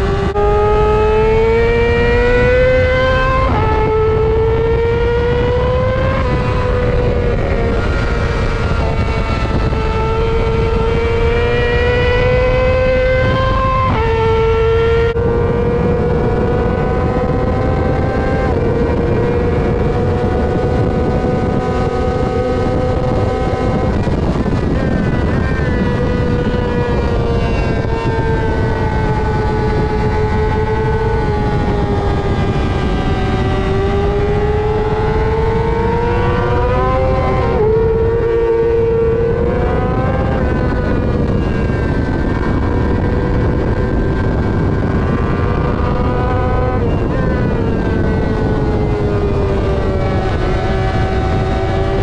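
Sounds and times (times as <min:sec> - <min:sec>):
motorcycle engine revving: 0:00.0 - 0:52.0
wind rush: 0:00.0 - 0:52.0.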